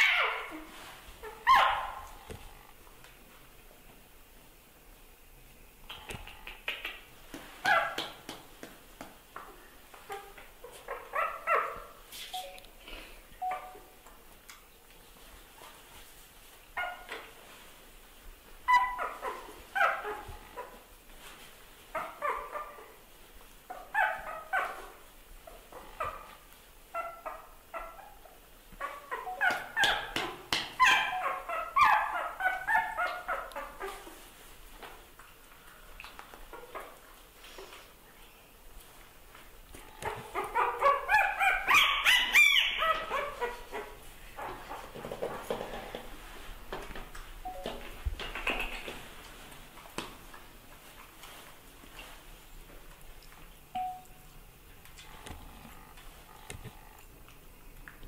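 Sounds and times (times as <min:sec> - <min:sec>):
high animal cries: 0:00.0 - 0:00.6, 0:39.8 - 0:44.5
dog whimpering: 0:00.0 - 0:02.0, 0:28.8 - 0:30.2, 0:30.8 - 0:34.0, 0:39.9 - 0:44.6
baby monkey squeaking: 0:40.4 - 0:43.5.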